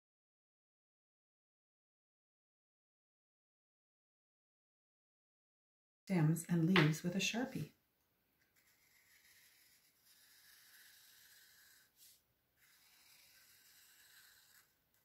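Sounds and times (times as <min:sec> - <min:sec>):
marker scratching on paper: 0:08.4 - 0:15.0.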